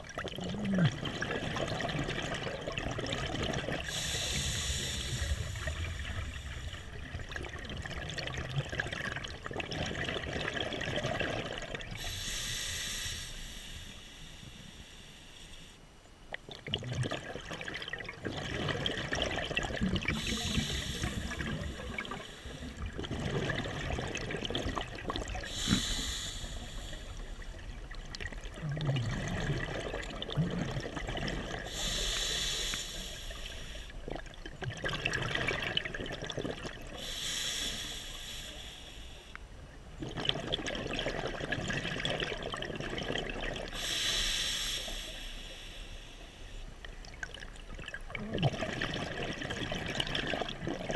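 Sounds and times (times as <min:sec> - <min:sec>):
exhaled bubbles rushing: 0:00.0 - 0:12.1, 0:16.5 - 0:31.9, 0:34.1 - 0:37.0, 0:40.0 - 0:43.8, 0:47.0 - 0:50.9
regulator inhalation hiss: 0:03.9 - 0:07.0, 0:12.0 - 0:15.8, 0:20.1 - 0:22.8, 0:25.5 - 0:27.6, 0:31.7 - 0:34.0, 0:37.0 - 0:39.3, 0:43.8 - 0:46.6.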